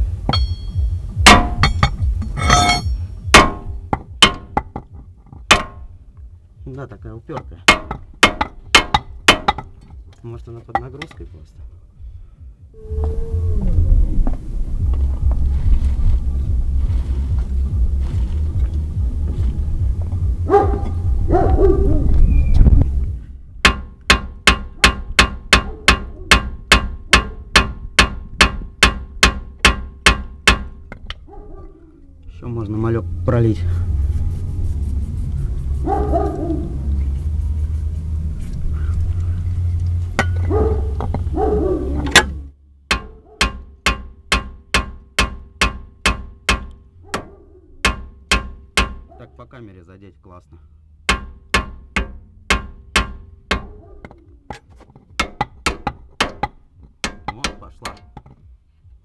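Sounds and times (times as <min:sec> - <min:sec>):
low rumble: 0:00.0 - 0:42.9, 0:50.5 - 0:54.5
hammer clanking on metal: 0:00.2 - 0:05.9, 0:07.3 - 0:10.0, 0:23.6 - 0:31.1, 0:42.0 - 0:46.8, 0:47.8 - 0:49.1, 0:51.1 - 0:54.2, 0:54.9 - 0:58.5.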